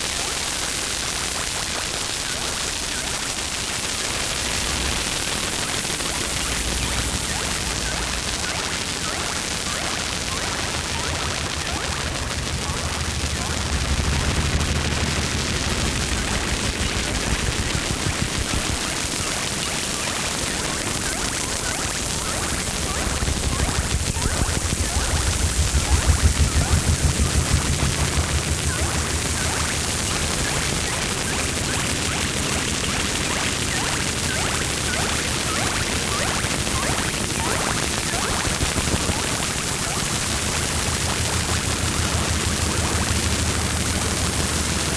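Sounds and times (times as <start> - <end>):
dense crackling and hiss: 0.0 - 44.9
low hum: 10.7 - 18.9, 21.9 - 37.2.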